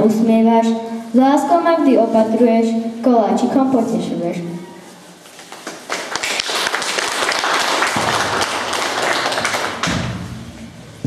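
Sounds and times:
audience applauding: 5.4s - 10.2s.

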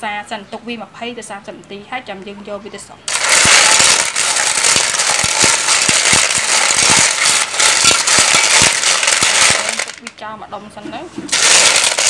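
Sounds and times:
shells clicking: 3.1s - 10.1s
shells scraping in metal pot: 3.1s - 10.2s, 11.3s - 12.0s.

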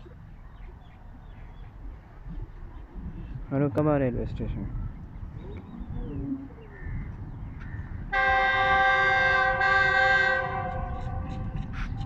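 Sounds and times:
low train rumble: 0.0s - 12.0s
locomotive horn chord: 8.1s - 11.3s.

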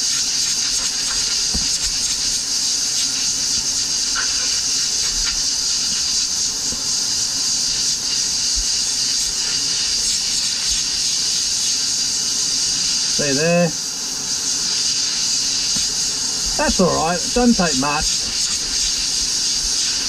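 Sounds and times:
air blow gun hissing: 0.0s - 20.0s.

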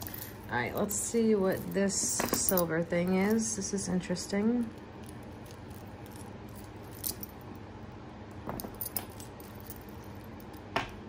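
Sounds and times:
jewelry clinking and clicking: 0.0s - 3.5s, 4.6s - 7.4s, 8.5s - 11.0s.

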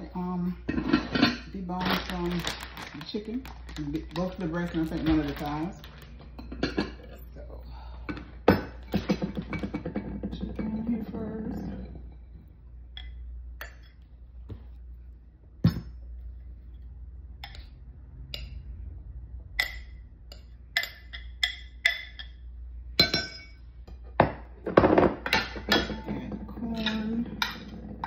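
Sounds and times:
glass dishes clinking: 6.4s - 7.2s, 8.1s - 12.3s, 19.6s - 22.4s, 23.0s - 28.0s.

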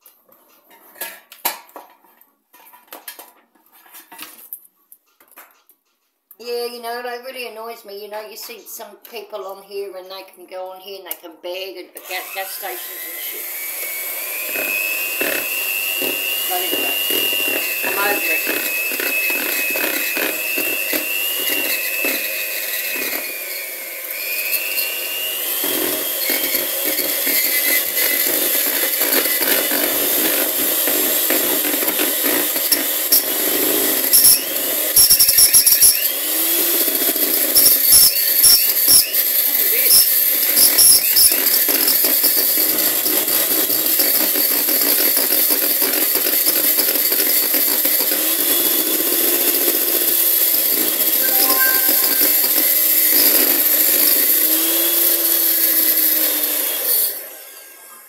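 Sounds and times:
electric hand mixer running: 12.0s - 58.0s.

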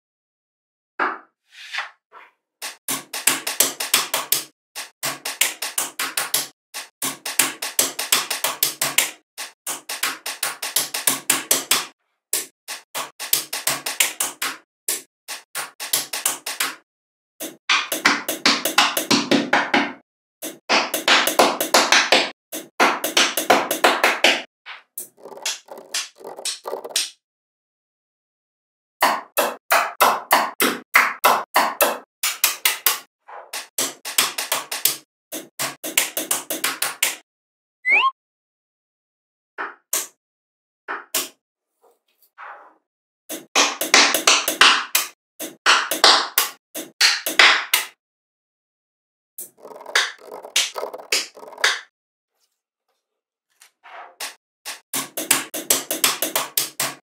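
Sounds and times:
magnetic balls clicking together: 49.5s - 51.8s.

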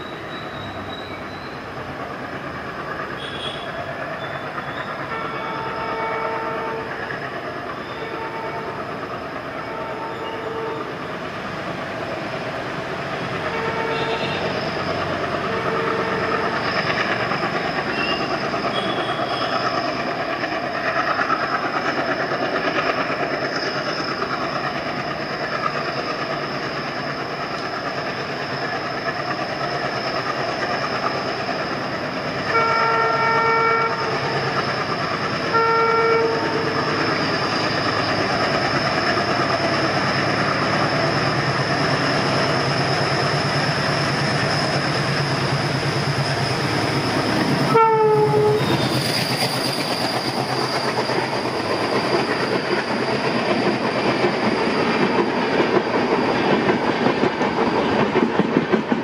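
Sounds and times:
diesel locomotive engine chugging: 0.0s - 59.0s
train horn blasts: 3.2s - 3.8s, 5.1s - 7.0s, 7.9s - 8.8s, 9.6s - 10.9s, 13.4s - 14.6s, 15.4s - 16.6s, 17.9s - 19.6s, 32.5s - 34.2s, 35.5s - 36.8s, 47.6s - 48.8s.

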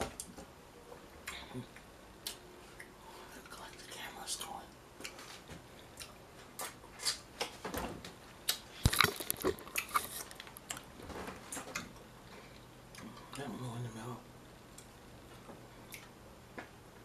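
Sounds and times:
chewing and mouth clicks: 5.0s - 7.2s, 8.5s - 10.9s, 15.8s - 16.2s.

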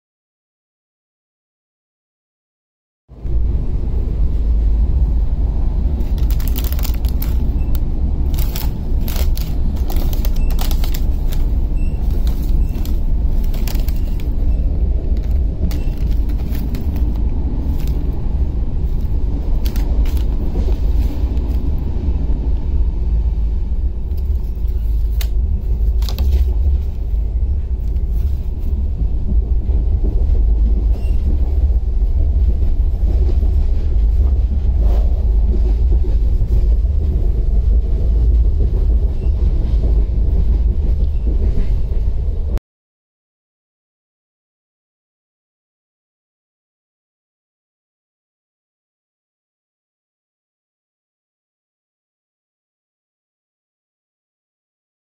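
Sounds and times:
train rumble: 3.1s - 42.6s
plastic packets crackling: 6.0s - 14.5s, 15.1s - 18.2s, 18.9s - 21.6s, 24.1s - 26.6s.

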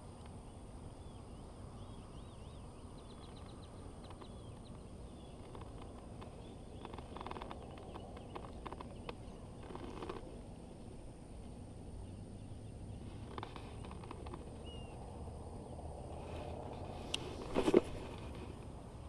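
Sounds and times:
birds chirping: 0.0s - 18.6s
steady low rumble: 0.0s - 19.0s
small sharp clicks and rustles: 3.0s - 10.6s, 13.0s - 15.1s, 16.1s - 19.0s.

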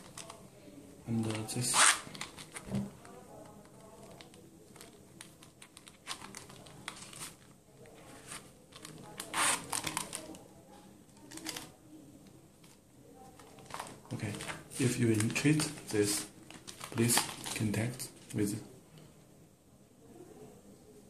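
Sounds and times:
leather and zipper rubbing: 1.7s - 2.0s, 9.3s - 9.7s.

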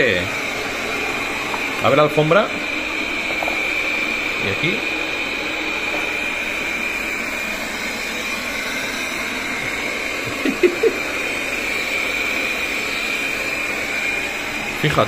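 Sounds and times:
robot vacuum whirring: 0.0s - 15.0s.

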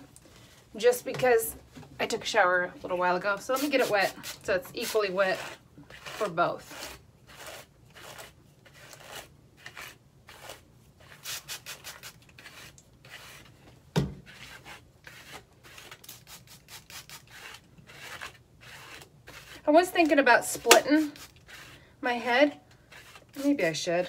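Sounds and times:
hairbrush rubbing wet hair: 3.4s - 8.2s, 22.9s - 23.8s
thump: 14.0s - 14.2s.

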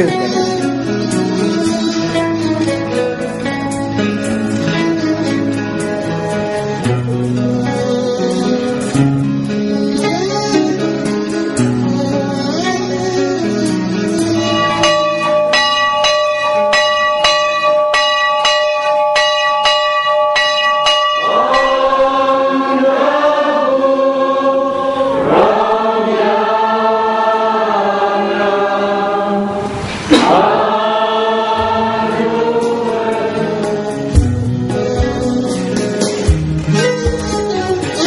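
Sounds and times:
instrument playing repeated notes: 12.4s - 22.5s
choir singing: 21.2s - 34.4s
sudden loud sound: 29.5s - 30.9s.

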